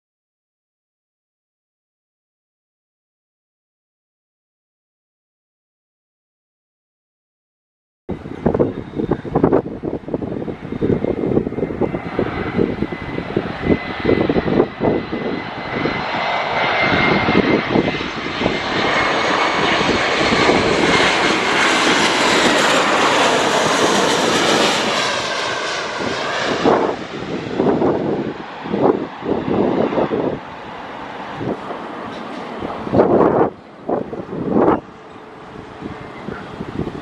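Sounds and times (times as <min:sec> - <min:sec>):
jet engines whining and roaring: 0:08.1 - 0:37.0
wind buffeting microphone: 0:08.1 - 0:37.0.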